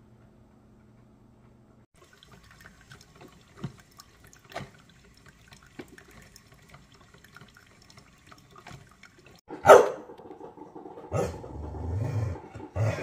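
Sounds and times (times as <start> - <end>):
coffee dripping: 2.0 - 9.5
coffee trickling into mug: 2.0 - 9.5.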